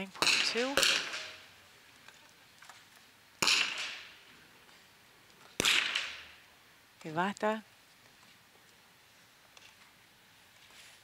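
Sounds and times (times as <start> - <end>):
rifle shots echoing: 0.2 - 1.5, 3.4 - 4.2, 5.6 - 6.4.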